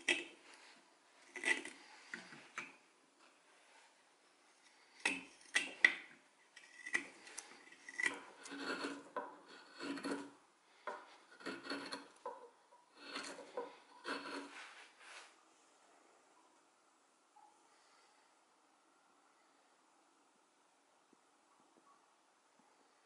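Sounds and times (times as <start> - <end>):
carving knife scraping wood: 0.0 - 2.8, 4.6 - 14.9.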